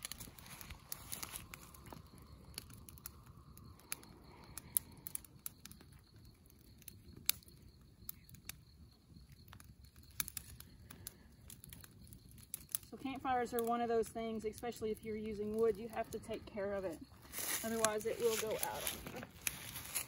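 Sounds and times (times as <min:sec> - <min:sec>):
twigs snapping by hand: 0:00.0 - 0:05.8, 0:17.3 - 0:20.0
campfire crackling: 0:00.0 - 0:20.0.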